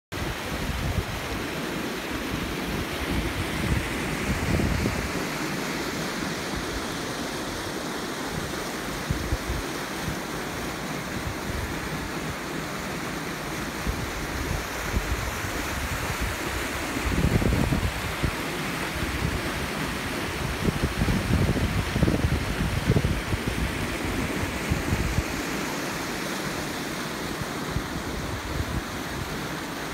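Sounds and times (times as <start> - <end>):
small stream rushing: 0.1 - 29.9
wind buffeting microphone: 2.7 - 5.2, 13.8 - 18.4, 19.0 - 25.5.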